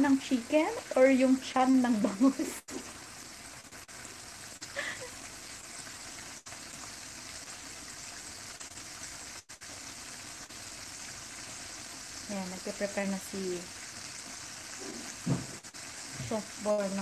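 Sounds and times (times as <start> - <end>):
chicken frying in hot oil: 0.0 - 17.0.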